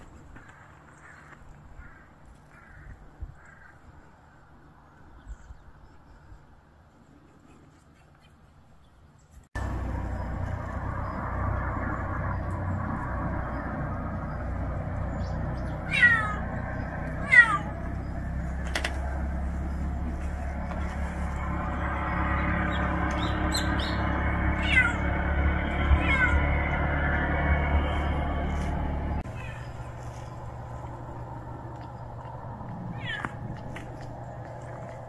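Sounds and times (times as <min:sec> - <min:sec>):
cat meowing: 0:15.8 - 0:16.5, 0:17.2 - 0:17.8, 0:24.5 - 0:25.1, 0:25.8 - 0:26.6, 0:29.3 - 0:29.7, 0:32.9 - 0:33.5.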